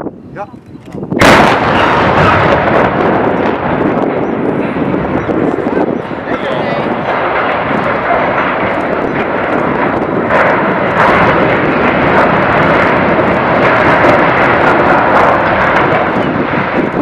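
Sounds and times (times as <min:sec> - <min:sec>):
crane crashing with sharp cracks: 0:06.9 - 0:17.0.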